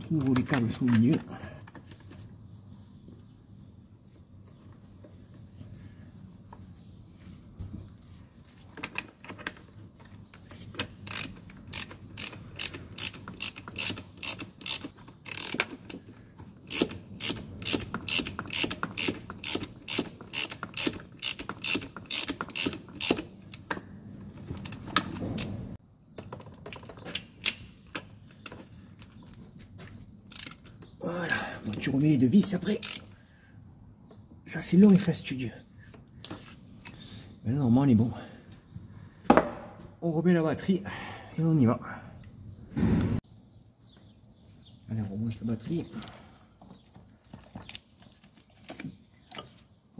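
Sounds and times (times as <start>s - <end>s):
ratchet wrench clicking: 11.0s - 16.0s, 16.7s - 23.7s, 30.3s - 30.6s, 32.8s - 33.1s.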